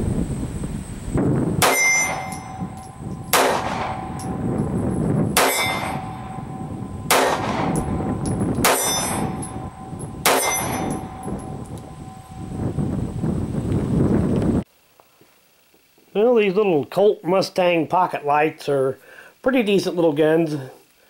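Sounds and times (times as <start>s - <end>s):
brief metallic ring: 1.6s - 3.3s, 7.8s - 12.4s
pistol shots: 1.6s - 4.4s, 5.4s - 11.5s.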